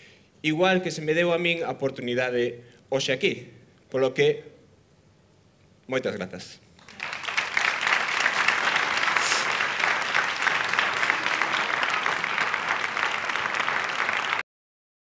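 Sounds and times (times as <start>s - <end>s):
audience applauding: 6.8s - 14.4s.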